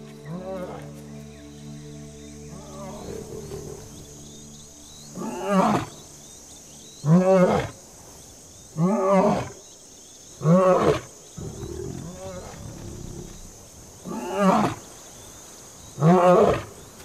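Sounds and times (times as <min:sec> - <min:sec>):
lion roaring: 0:10.4 - 0:13.5.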